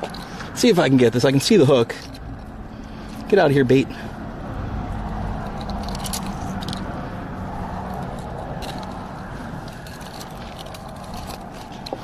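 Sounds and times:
road traffic rumble: 0.0s - 12.0s
metal pliers clicking: 5.4s - 7.0s, 7.8s - 12.0s.

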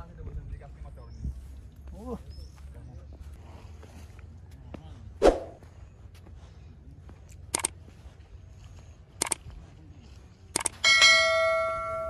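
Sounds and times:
sharp clicks: 7.4s - 7.8s, 9.2s - 9.4s, 10.5s - 10.8s
loud metallic ring: 10.8s - 12.0s.

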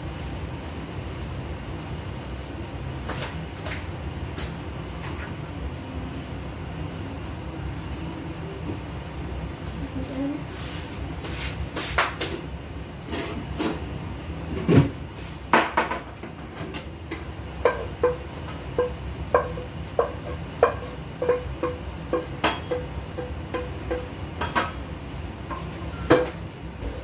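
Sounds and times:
utensil clanking against wok: 15.6s - 24.8s.

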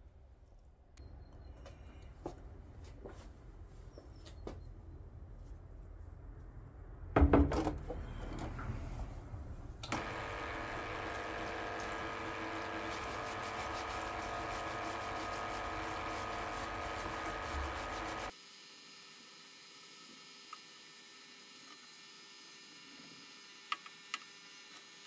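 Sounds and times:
parts washer pump running: 9.8s - 18.3s
brush scrubbing casing: 10.0s - 18.3s
fluid pouring from nozzle: 10.0s - 18.3s.

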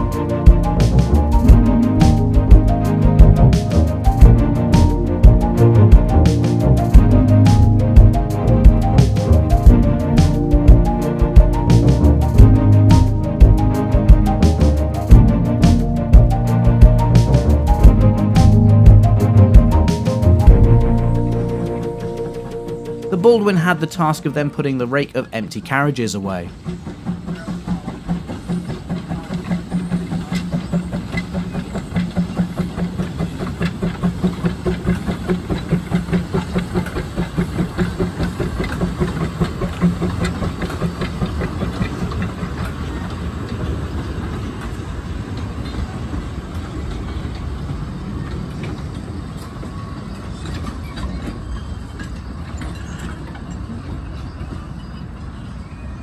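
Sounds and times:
steam locomotive exhaust beating: 0.0s - 55.9s
train running rumble: 0.0s - 56.0s.

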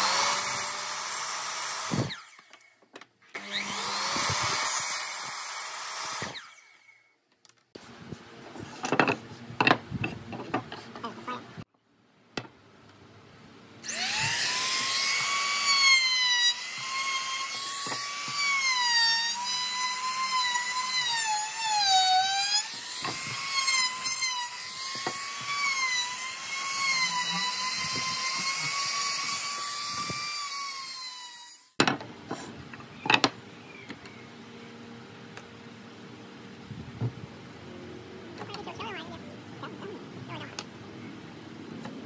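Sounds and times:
router cutting wood: 0.0s - 2.6s, 3.3s - 6.8s, 13.8s - 31.7s.

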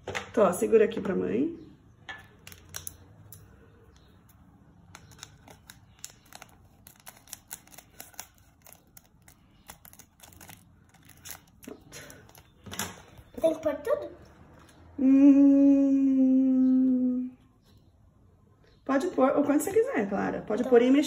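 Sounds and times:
plastic sachet crinkling: 5.0s - 12.6s.

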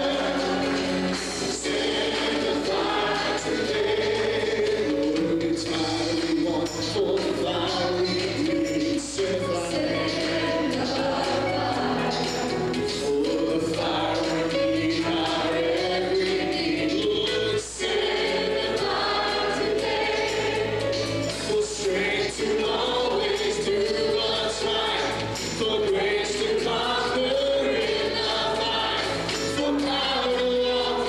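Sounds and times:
choir singing gospel: 0.0s - 31.0s
live band playing: 0.0s - 31.0s
soloists singing into microphones: 0.0s - 31.0s.

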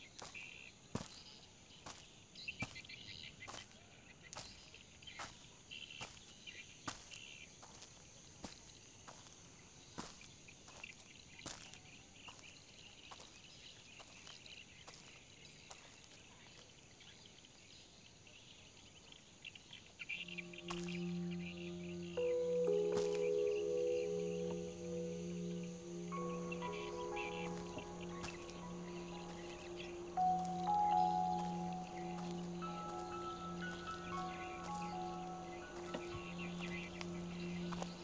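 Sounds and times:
faint insect chirping: 20.3s - 38.0s.

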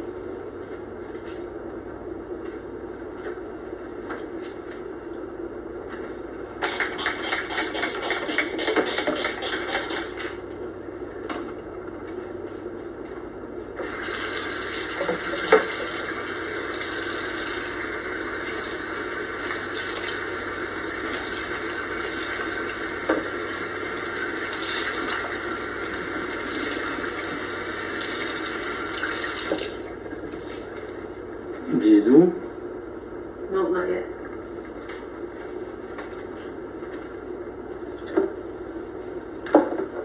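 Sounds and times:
tap running into a sink: 14.9s - 16.0s, 23.0s - 23.4s, 29.0s - 29.8s.

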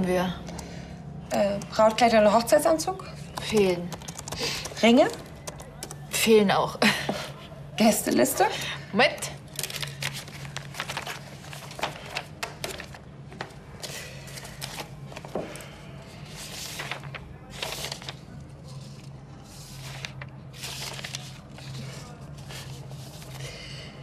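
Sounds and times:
low steady hum: 0.0s - 24.0s
paper rustling: 9.6s - 23.6s.

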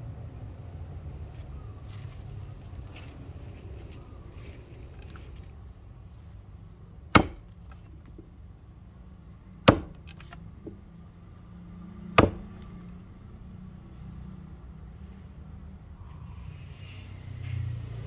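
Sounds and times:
axe chopping into wood: 7.1s - 8.3s, 9.6s - 10.8s, 12.1s - 12.7s.

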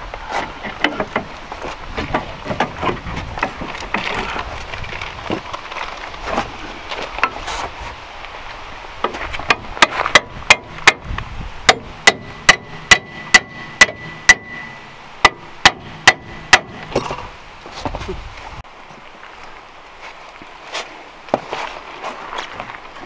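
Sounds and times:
hammer striking metal: 11.7s - 17.1s
faint metallic ringing: 12.0s - 17.3s.

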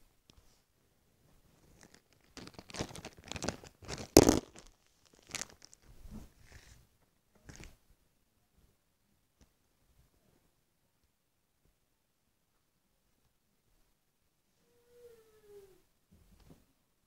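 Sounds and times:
rustling and crinkling handling noise: 1.2s - 6.4s.

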